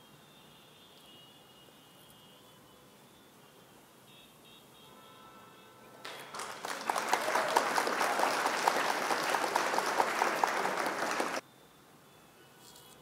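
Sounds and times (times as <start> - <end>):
applause: 6.0 - 11.4.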